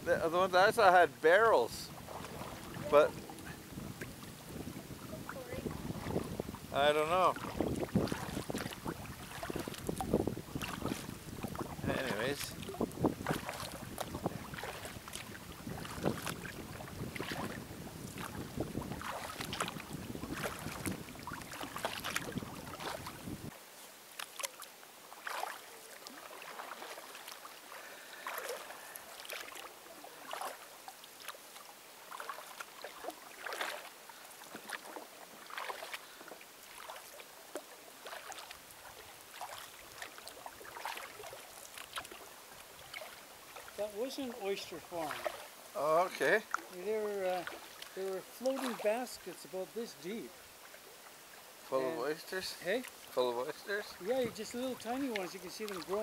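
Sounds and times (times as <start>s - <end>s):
paddle splashing and dripping: 0.0s - 56.0s
wind on microphone: 1.8s - 23.5s.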